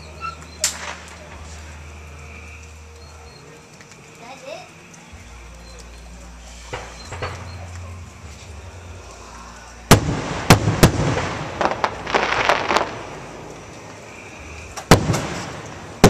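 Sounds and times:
firework pops and crackle: 0.2 - 1.7, 9.9 - 14.0, 14.7 - 16.0
firework shells bursting: 9.9 - 14.0, 14.7 - 16.0.

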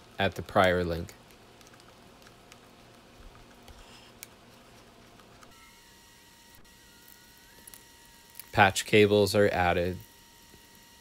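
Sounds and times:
faint electronic tone: 5.5 - 8.2.

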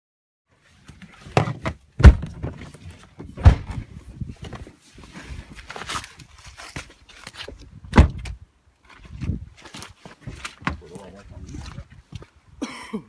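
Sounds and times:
car door thunks: 2.0 - 2.5, 3.4 - 3.8, 7.9 - 8.2.

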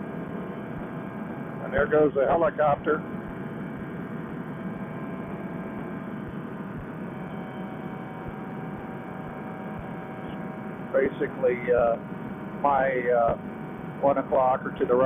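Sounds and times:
muffled paramotor engine drone: 0.0 - 15.0.

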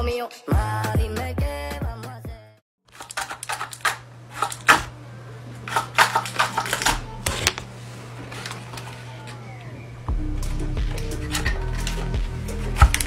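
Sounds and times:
paper clicking and rustling: 2.9 - 4.9, 5.7 - 7.7, 8.3 - 9.4.

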